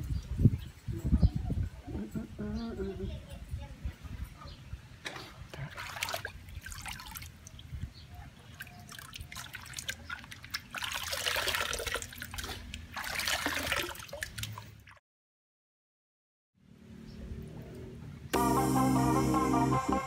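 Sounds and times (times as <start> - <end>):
water splashing in tub: 5.1 - 7.7, 8.4 - 15.0.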